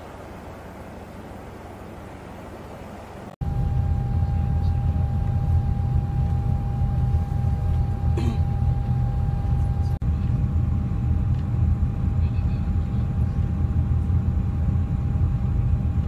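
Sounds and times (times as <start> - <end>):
low engine drone: 0.0 - 16.0
steady high tone: 3.4 - 10.0.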